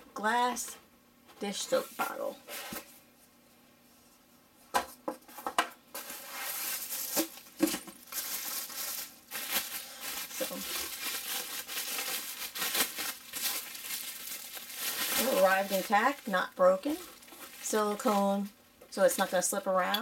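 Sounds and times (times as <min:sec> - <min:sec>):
bubble wrap and paper crinkling: 0:05.9 - 0:18.5.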